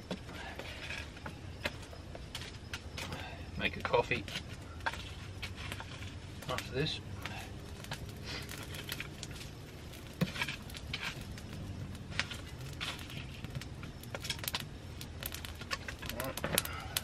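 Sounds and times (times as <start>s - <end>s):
stick stoking fire: 0.0s - 17.0s
wood fire crackling and popping: 0.0s - 17.0s.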